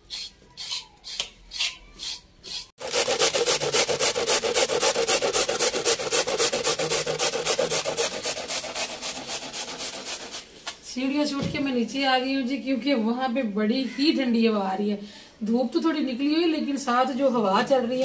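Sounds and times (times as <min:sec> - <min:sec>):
knife scraping a carrot: 0:00.0 - 0:10.6
carrots grated on metal grater: 0:02.5 - 0:10.5.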